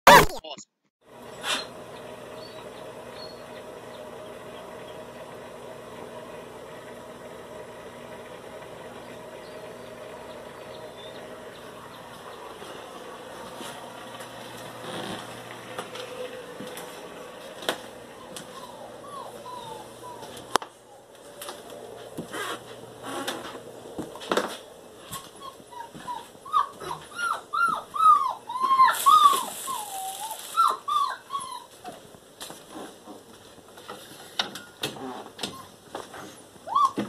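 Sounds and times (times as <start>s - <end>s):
dog whining: 1.4s - 1.8s, 2.4s - 3.5s, 18.2s - 21.6s, 25.0s - 32.0s, 35.0s - 37.0s.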